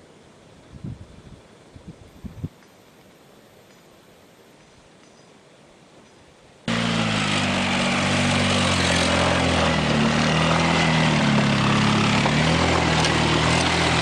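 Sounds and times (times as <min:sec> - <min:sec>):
atv engine running: 0:06.7 - 0:14.0.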